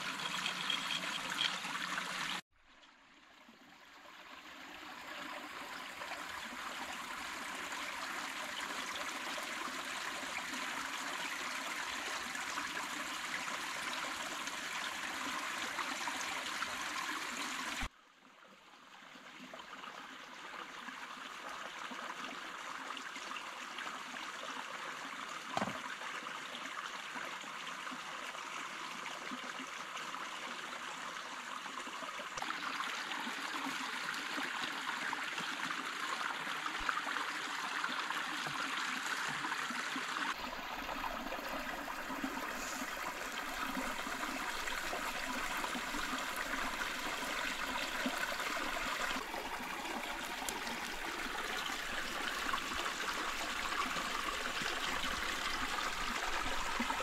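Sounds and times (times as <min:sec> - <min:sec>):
stream splashing over rocks: 0:00.0 - 0:02.4, 0:32.3 - 0:57.0
brief knock: 0:25.6 - 0:25.8.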